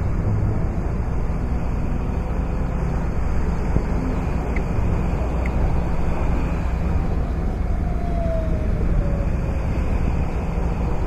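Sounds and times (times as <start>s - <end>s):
engine rumbling: 0.0s - 11.0s.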